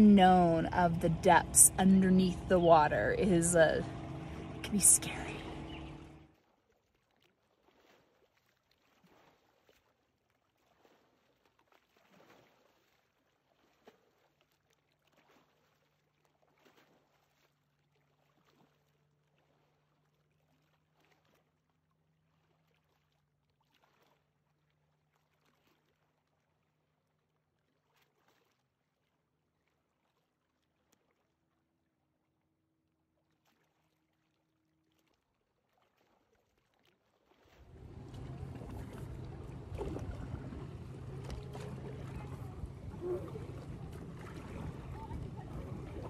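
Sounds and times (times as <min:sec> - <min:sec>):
faint low hum: 0:37.6 - 0:46.0.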